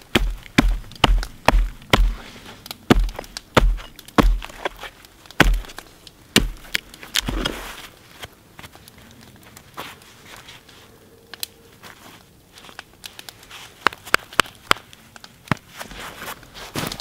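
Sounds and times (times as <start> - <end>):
sharp knocks on wooden stump: 0.0 - 2.2, 2.9 - 4.7, 5.4 - 5.8, 6.4 - 6.7
bones rustling and crackling: 0.0 - 17.0.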